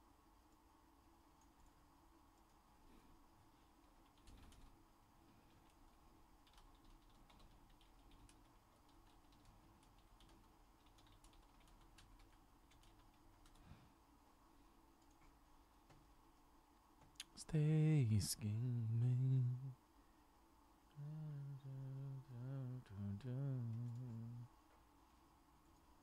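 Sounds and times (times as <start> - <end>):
typing on computer keyboard: 4.0 - 4.8, 6.4 - 13.6.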